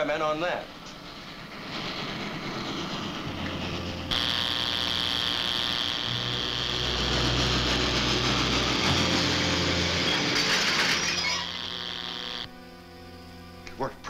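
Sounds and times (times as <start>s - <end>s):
low hum: 0.6s - 13.7s
ray gun electric buzz: 4.1s - 13.7s.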